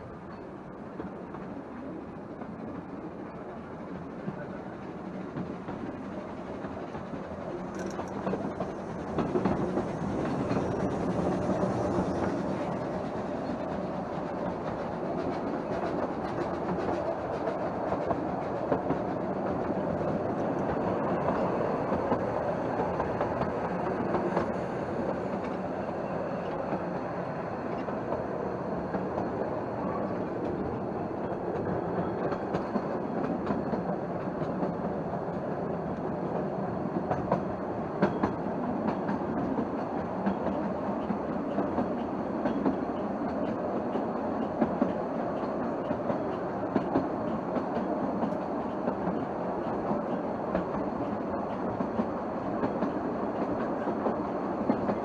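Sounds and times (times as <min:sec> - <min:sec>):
train wheels on rails: 0:00.0 - 0:55.0
wheels clacking over rail joints: 0:05.1 - 0:25.7, 0:27.7 - 0:55.0.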